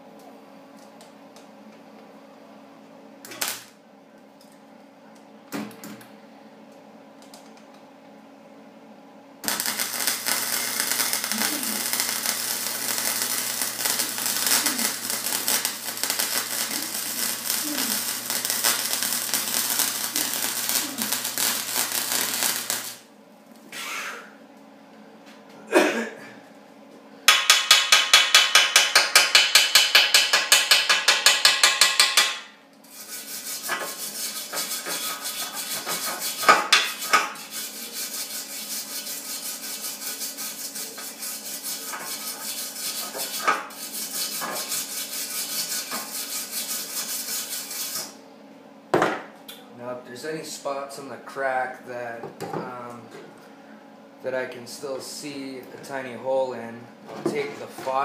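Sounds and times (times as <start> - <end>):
steady electrical hum: 0.0 - 58.0
welder arc crackling: 3.3 - 3.7, 9.4 - 23.1
scraping on steel pipe: 32.9 - 48.1.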